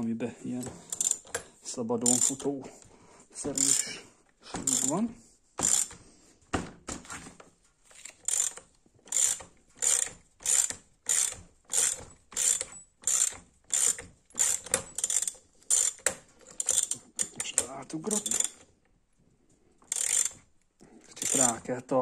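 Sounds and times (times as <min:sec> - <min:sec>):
socket ratchet clicking: 0:00.9 - 0:01.4, 0:03.5 - 0:03.9, 0:04.6 - 0:05.0, 0:05.6 - 0:06.0, 0:08.2 - 0:18.7, 0:19.9 - 0:20.4, 0:21.1 - 0:21.6.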